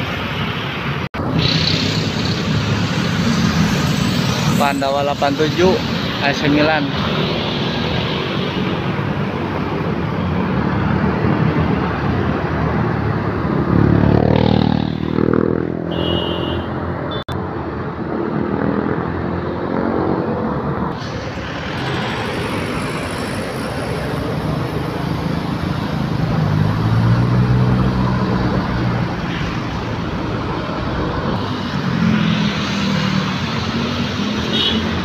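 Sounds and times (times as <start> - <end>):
road traffic: 0.0 - 35.0
bus diesel engine passing: 19.3 - 34.3.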